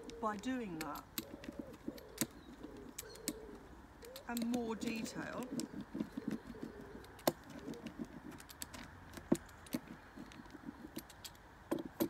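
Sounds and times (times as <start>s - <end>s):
clicks and rattles: 4.0s - 12.0s.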